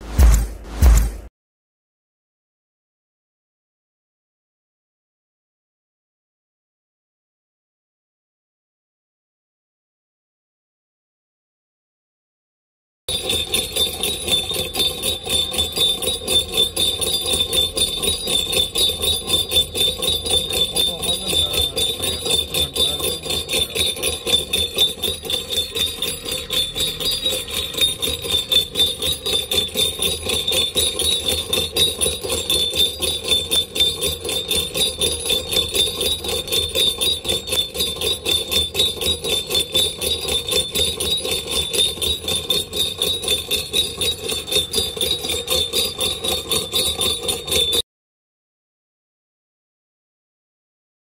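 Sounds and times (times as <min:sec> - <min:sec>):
jingling bells on motor: 0:13.1 - 0:47.8.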